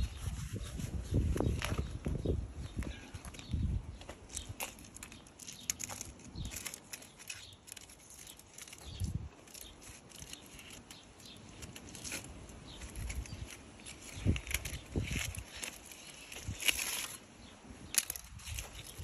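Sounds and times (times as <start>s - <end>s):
aluminium foil crinkling: 4.3s - 19.0s.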